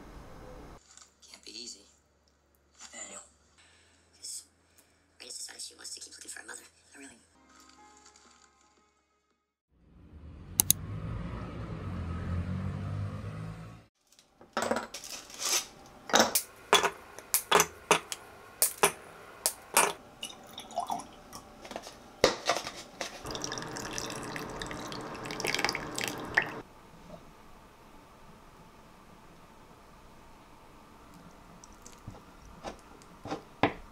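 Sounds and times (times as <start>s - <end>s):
milk pouring into jug: 20.2s - 21.3s, 23.2s - 26.6s.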